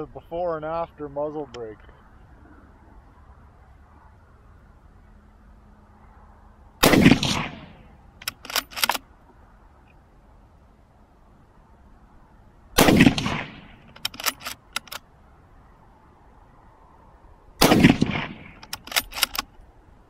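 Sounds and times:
rifle shots echoing: 0:06.8 - 0:09.0, 0:12.8 - 0:14.6, 0:17.6 - 0:19.4
rifle bolt clacking: 0:08.2 - 0:09.1, 0:13.0 - 0:15.0, 0:17.8 - 0:19.6.

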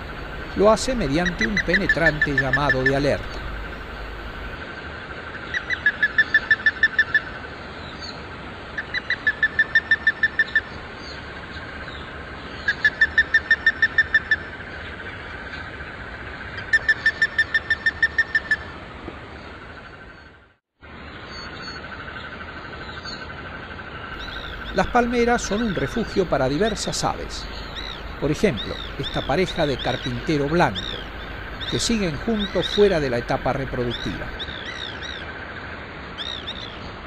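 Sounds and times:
ibis alarm call: 0:00.0 - 0:04.6, 0:05.3 - 0:07.4, 0:08.8 - 0:11.2, 0:12.6 - 0:15.7, 0:16.5 - 0:18.7, 0:24.0 - 0:35.4.

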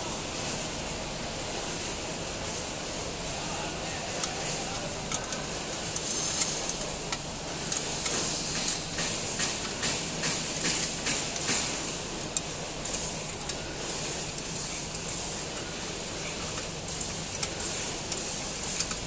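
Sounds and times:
spanner clicking and scraping on metal: 0:05.0 - 0:11.6, 0:14.2 - 0:19.0.

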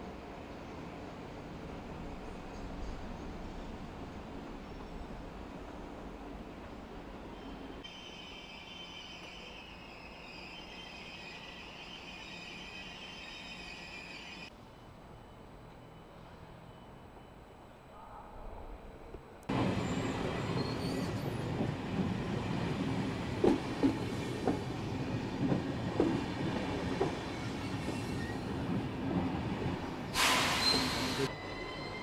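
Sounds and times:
train rumbling through station: 0:00.0 - 0:32.0
brief high hiss: 0:30.2 - 0:31.3.

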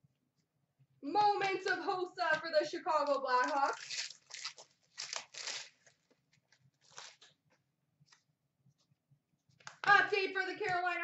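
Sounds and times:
trading card packs rustling: 0:03.0 - 0:07.5.

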